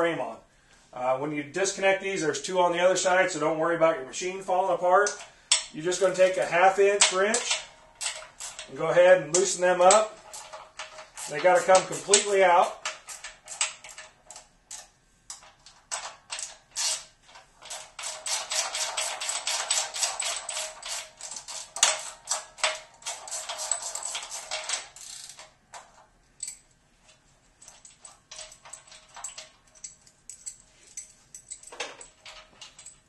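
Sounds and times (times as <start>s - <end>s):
ratchet wrench clicking: 9.3s - 14.9s, 16.4s - 25.5s, 26.4s - 26.6s.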